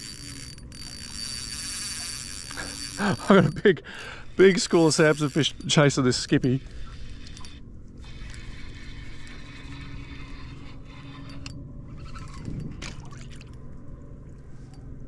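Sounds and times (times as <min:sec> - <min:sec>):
low steady hum: 0:00.0 - 0:15.0
water lapping against boat hull: 0:04.4 - 0:13.7.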